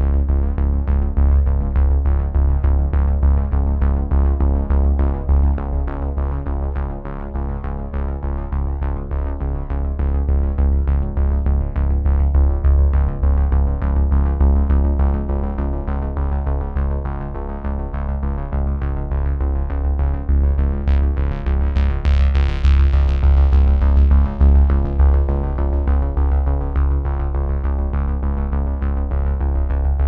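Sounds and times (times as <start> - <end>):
deep sustained bass: 0.0 - 30.0
synthesizer and keyboard music: 15.4 - 30.0.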